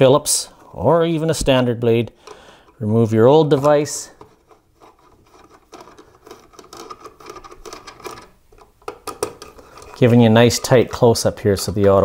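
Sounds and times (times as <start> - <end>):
screwdriver rasping: 3.5 - 8.4.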